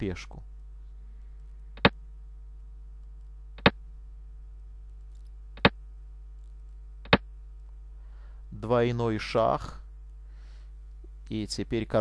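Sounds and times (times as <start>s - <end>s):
faint steady hum: 0.0s - 12.0s
sharp single clicks: 7.0s - 7.3s.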